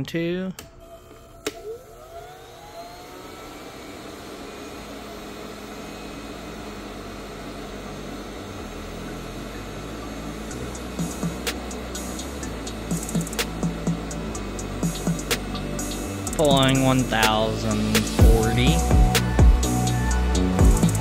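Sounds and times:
heat gun blower rushing: 0:00.8 - 0:21.0.

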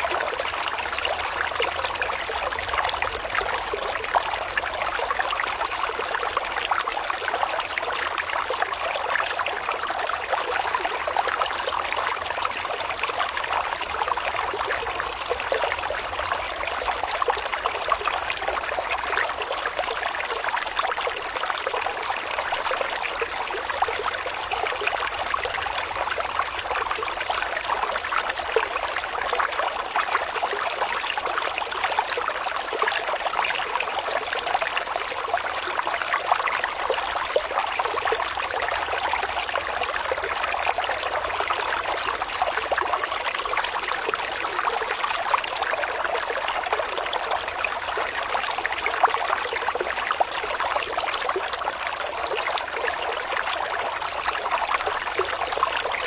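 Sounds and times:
stream running over rocks: 0:00.0 - 0:56.0.

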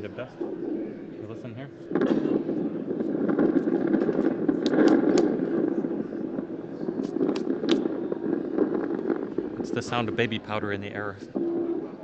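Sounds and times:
dense irregular photodetector noise: 0:00.0 - 0:12.0
sharp clicks: 0:04.0 - 0:05.3.

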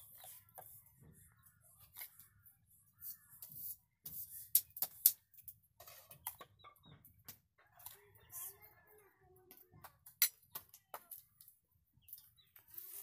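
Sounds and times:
spoon scooping sugar: 0:12.6 - 0:13.0.

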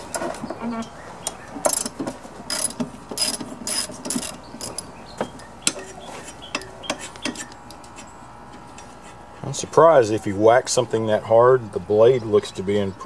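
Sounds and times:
ratchet wrench clicking: 0:02.5 - 0:04.9.

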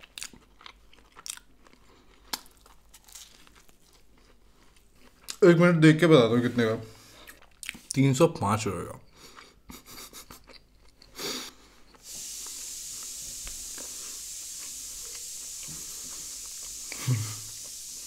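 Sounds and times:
person chewing food: 0:00.0 - 0:05.4, 0:07.0 - 0:08.0, 0:09.0 - 0:18.0
steady hiss: 0:11.3 - 0:18.0.

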